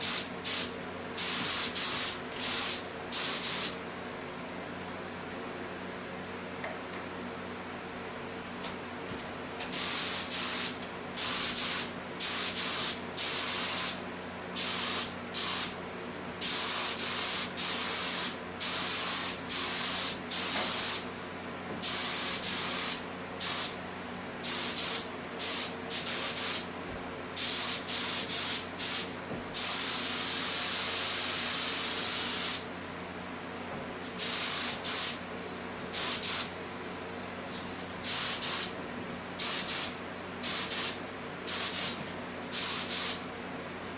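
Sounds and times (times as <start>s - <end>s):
spray gun hissing bursts: 0.0s - 3.8s, 9.7s - 14.0s, 14.6s - 15.8s, 16.4s - 21.0s, 21.8s - 23.8s, 24.4s - 26.7s, 27.4s - 32.7s, 34.0s - 38.8s, 39.4s - 43.2s.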